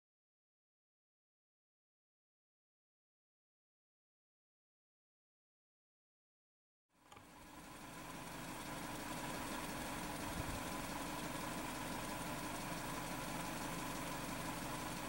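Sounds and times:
engine idling: 7.0 - 15.0.

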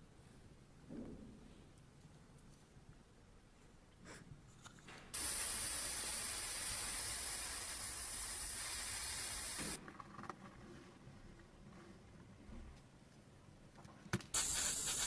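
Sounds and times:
spray paint hiss: 5.1 - 9.8, 14.3 - 15.0.

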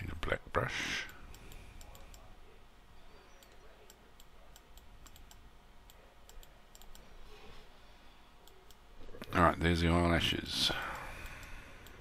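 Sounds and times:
low steady hum: 0.0 - 12.0
computer mouse clicks: 1.1 - 2.3, 3.4 - 7.1, 10.9 - 12.0.

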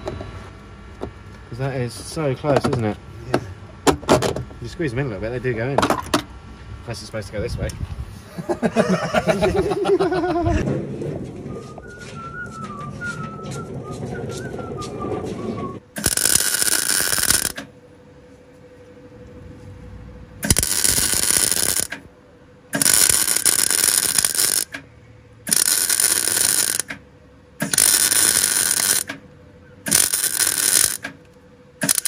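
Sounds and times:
welder arc-welding steel: 16.0 - 17.7, 20.4 - 22.0, 22.7 - 24.8, 25.4 - 27.0, 27.6 - 29.2, 29.8 - 31.2, 31.8 - 32.0.

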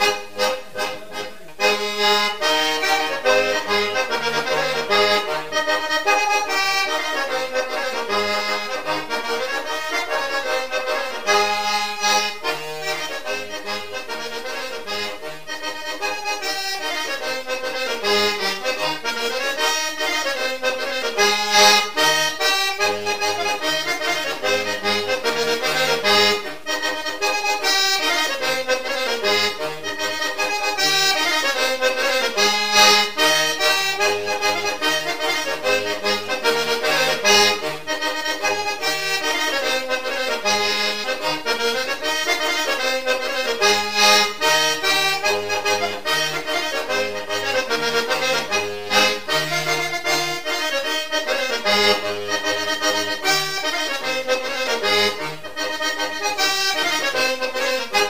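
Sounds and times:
background instrumental music: 0.0 - 58.0.

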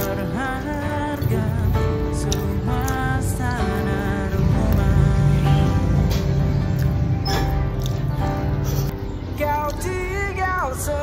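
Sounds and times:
song with singing and instruments: 0.0 - 6.6, 9.2 - 11.0.

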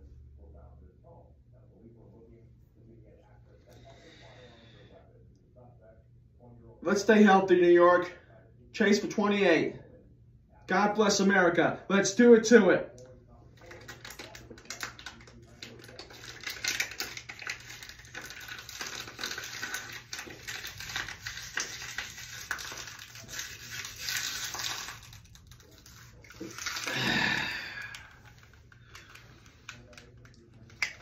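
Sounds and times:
plastic bottle crinkling: 13.6 - 31.0
man gulping water: 26.4 - 28.6.

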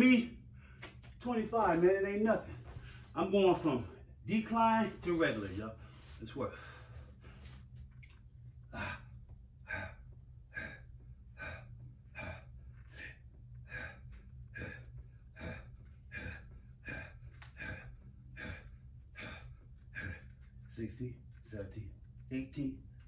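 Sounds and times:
man breathing hard: 5.2 - 7.7, 8.6 - 21.8.

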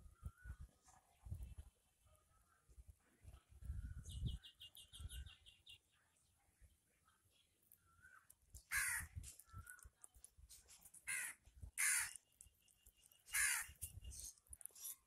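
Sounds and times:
birds chirping: 3.4 - 15.0
crow cawing: 8.7 - 9.1, 11.1 - 12.2, 13.3 - 13.8.

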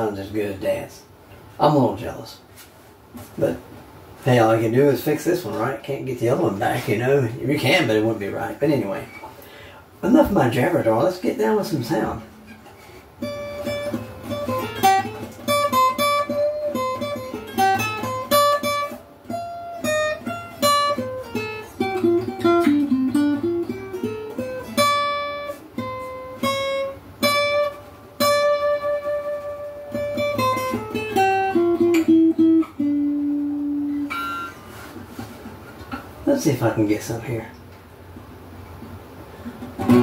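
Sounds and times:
acoustic guitar melody: 11.9 - 36.8, 37.9 - 40.0.

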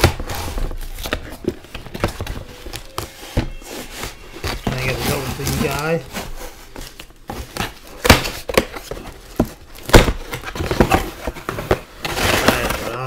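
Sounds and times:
packaging rustling: 0.0 - 13.0
packaging ripping: 12.1 - 13.0.

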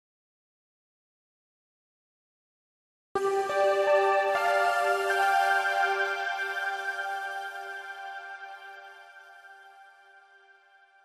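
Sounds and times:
soft sustained background music: 3.2 - 11.0.

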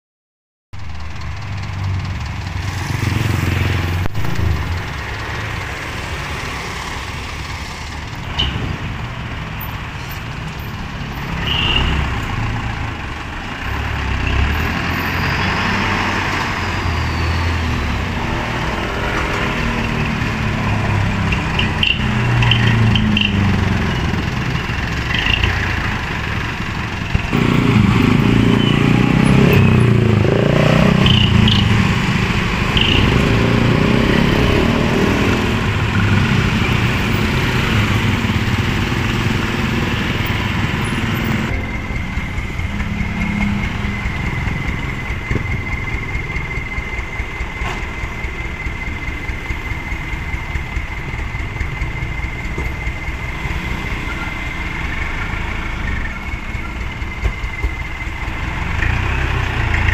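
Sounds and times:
truck diesel engine running: 0.8 - 59.9
motorcycles passing: 1.1 - 59.9.

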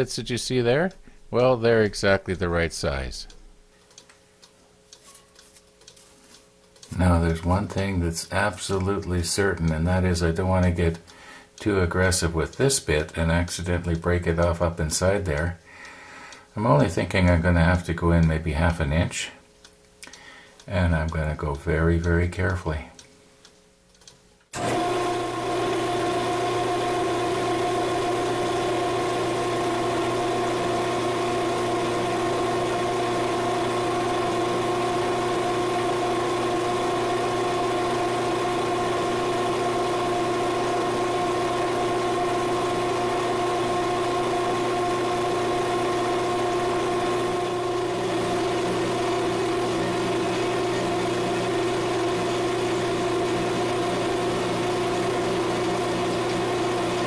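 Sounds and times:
lathe motor whining: 24.6 - 57.0.

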